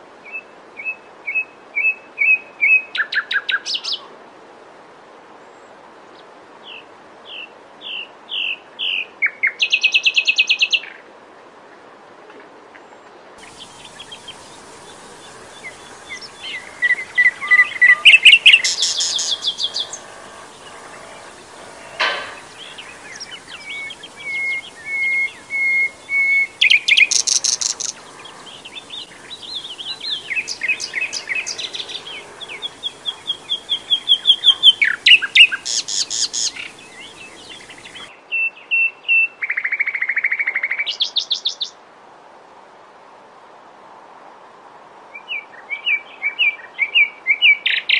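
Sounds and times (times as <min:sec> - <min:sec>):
buzzy bird trill: 0:13.4 - 0:38.1
warbler singing: 0:13.4 - 0:38.1.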